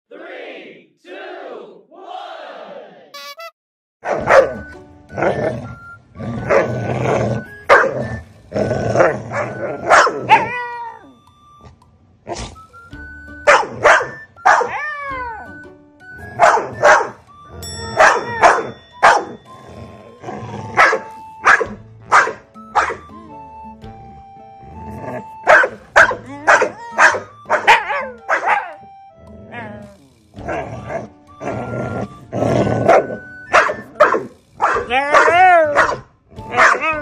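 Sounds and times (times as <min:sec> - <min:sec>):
background music: 0:03.2 - 0:37.0
dog barking: 0:04.0 - 0:04.7, 0:07.7 - 0:08.0, 0:09.3 - 0:10.5, 0:13.5 - 0:14.8, 0:16.4 - 0:17.2, 0:18.0 - 0:19.4, 0:20.8 - 0:23.0, 0:25.5 - 0:28.8, 0:32.9 - 0:37.0
dog yowling: 0:09.0 - 0:11.0, 0:17.9 - 0:23.0, 0:25.5 - 0:28.8, 0:32.8 - 0:37.0.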